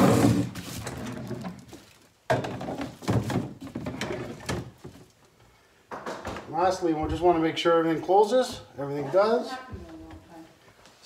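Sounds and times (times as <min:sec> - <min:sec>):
plastic scraping and rubbing: 0:00.0 - 0:02.0.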